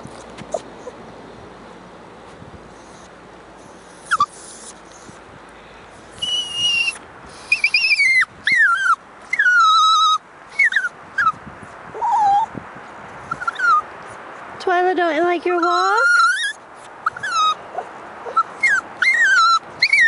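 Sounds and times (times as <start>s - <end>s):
puppy whining: 0.4s - 1.0s, 3.8s - 5.2s, 6.2s - 12.5s, 13.3s - 13.8s, 15.6s - 20.0s.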